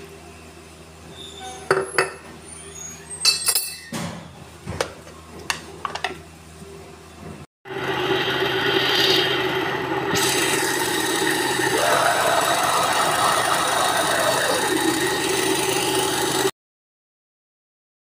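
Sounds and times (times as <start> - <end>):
blender motor running: 7.7 - 16.6.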